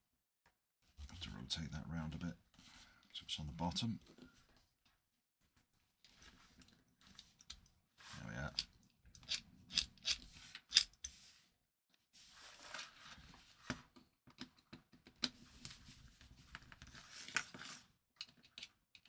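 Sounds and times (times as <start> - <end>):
screwdriver scraping and clattering: 8.5 - 11.1
small clicks and rubbing: 16.4 - 19.0.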